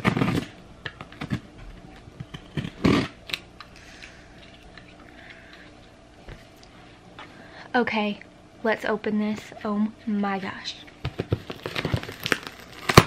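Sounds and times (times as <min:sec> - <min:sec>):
box cutter slicing packing tape: 0:00.0 - 0:00.5, 0:02.5 - 0:03.4, 0:11.5 - 0:13.0.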